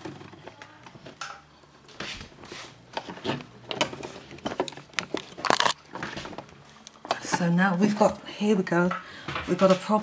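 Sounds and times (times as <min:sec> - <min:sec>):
handling knocks and rustles: 0:00.0 - 0:07.6.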